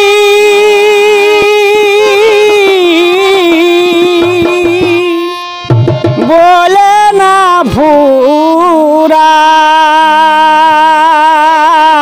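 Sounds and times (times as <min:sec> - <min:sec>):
harmonium: 0:00.0 - 0:12.0
person singing a long note: 0:00.0 - 0:12.0
hand drum strokes: 0:02.0 - 0:07.1.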